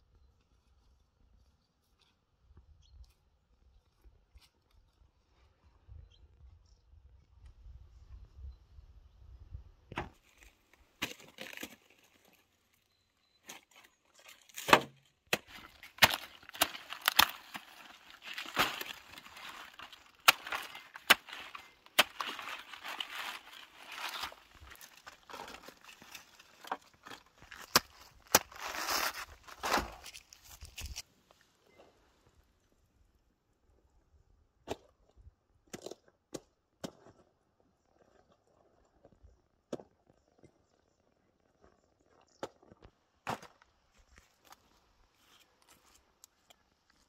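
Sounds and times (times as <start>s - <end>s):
cleaver chopping cabbage: 14.6s - 25.7s.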